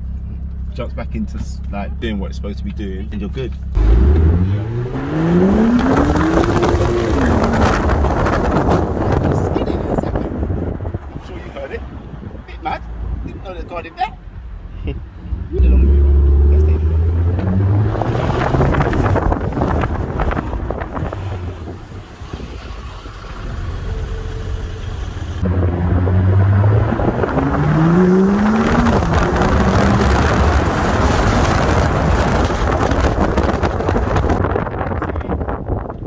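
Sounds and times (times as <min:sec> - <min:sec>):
tyre and road noise: 0:00.0 - 0:36.0
car engine accelerating: 0:03.2 - 0:11.0, 0:15.4 - 0:34.4
wind buffeting microphone: 0:05.2 - 0:13.8, 0:16.9 - 0:23.8, 0:25.4 - 0:36.0.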